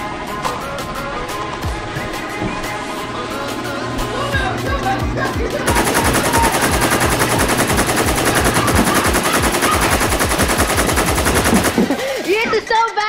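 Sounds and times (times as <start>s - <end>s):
machine-gun fire: 5.7s - 12.4s.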